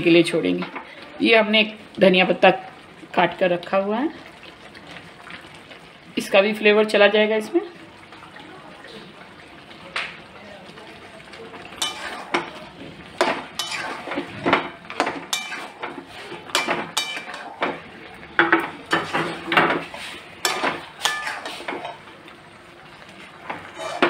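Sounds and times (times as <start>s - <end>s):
metal spatula scraping a pan: 11.7s - 17.8s, 18.4s - 22.0s, 23.4s - 24.0s.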